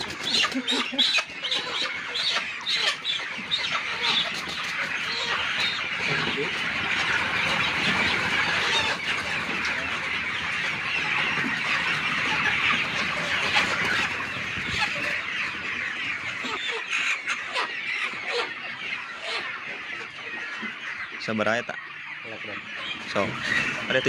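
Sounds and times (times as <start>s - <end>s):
chicken flapping wings: 0.0s - 1.1s
chickens clucking and calling: 0.0s - 24.0s.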